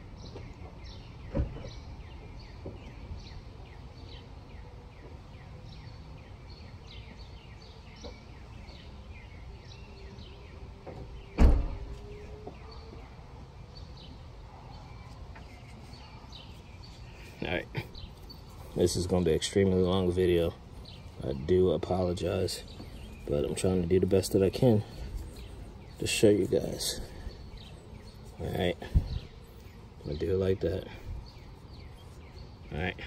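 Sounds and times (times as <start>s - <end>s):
birds chirping: 0.0s - 33.0s
low outdoor rumble: 1.5s - 33.0s
loud thump: 11.4s - 11.9s.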